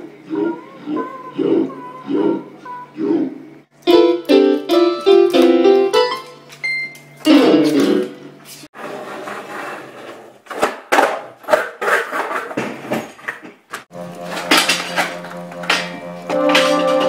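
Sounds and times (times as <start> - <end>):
skateboard wheels rolling on concrete: 8.7 - 12.4, 13.9 - 17.0.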